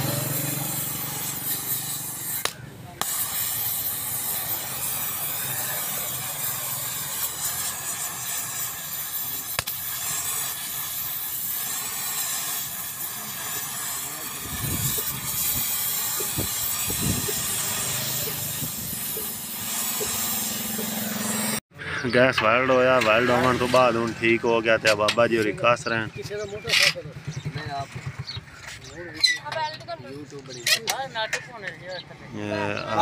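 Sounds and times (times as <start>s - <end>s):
welding torch flame hissing: 0.0s - 21.6s
low rumbles: 25.5s - 29.2s.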